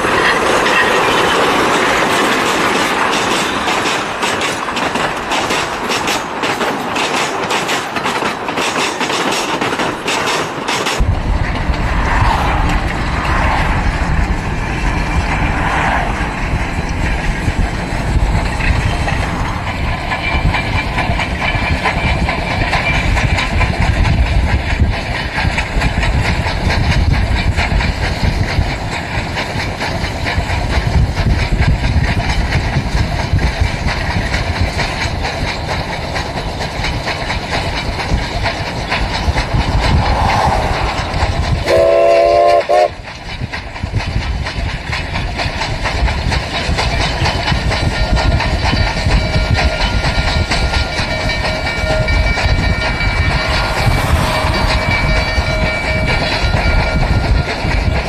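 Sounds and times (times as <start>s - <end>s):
steam locomotive rumbling past: 0.0s - 58.0s
steam whistle blast: 41.6s - 43.0s.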